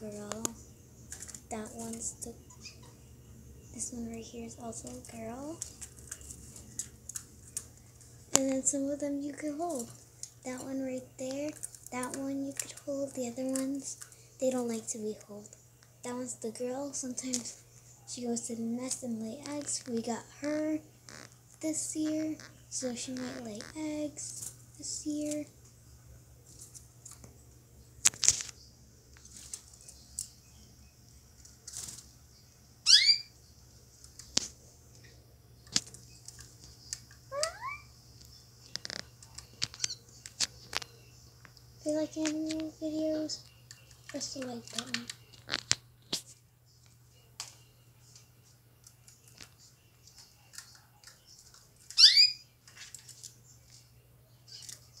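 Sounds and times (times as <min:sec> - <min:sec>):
canaries chirping: 0:01.1 - 0:07.0, 0:32.8 - 0:33.4, 0:36.0 - 0:41.2, 0:50.1 - 0:52.5.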